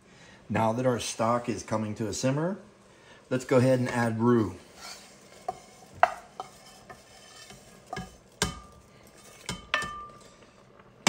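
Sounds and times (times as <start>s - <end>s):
wooden spatula scraping metal pan: 3.5s - 10.4s.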